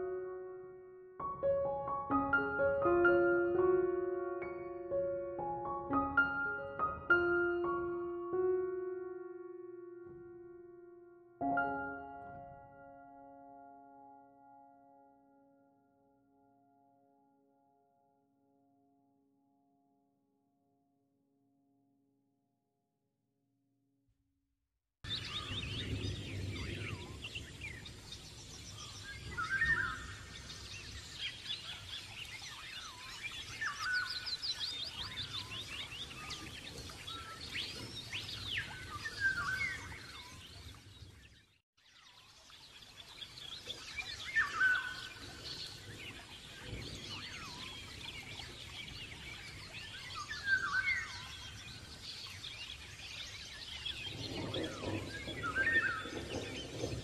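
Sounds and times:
small birds chirping and singing: 25.1 - 57.0.

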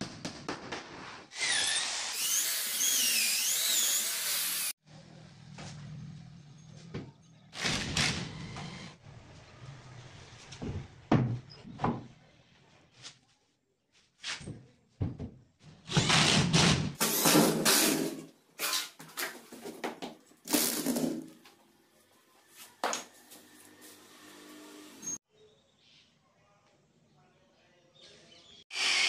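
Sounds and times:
power drill running: 1.4 - 4.8, 28.7 - 29.0.

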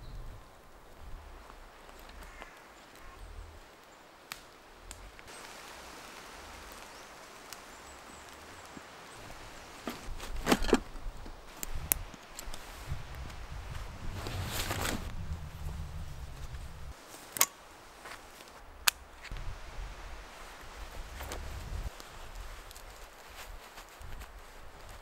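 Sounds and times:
twigs cracking: 0.8 - 15.2, 16.2 - 19.5, 20.8 - 25.0
footsteps on pine needles and twigs: 0.9 - 18.6, 20.2 - 25.0
backpack straps rustling: 8.8 - 15.1.

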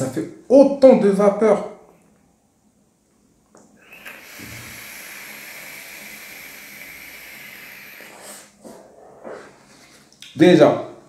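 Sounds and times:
vape draw hiss: 3.8 - 8.6.

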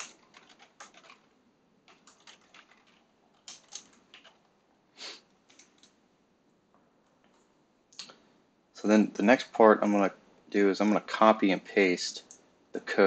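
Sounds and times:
computer keyboard typing: 0.0 - 4.5, 5.5 - 6.0.

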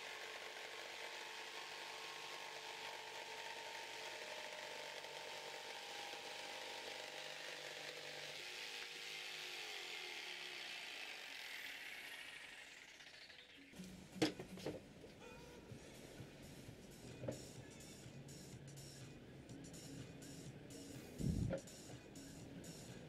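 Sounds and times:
jigsaw cutting timber: 0.0 - 13.5.

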